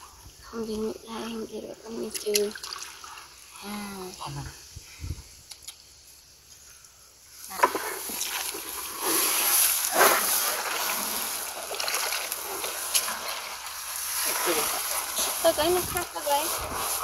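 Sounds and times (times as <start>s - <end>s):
feet sloshing through muddy water: 7.7s - 17.0s.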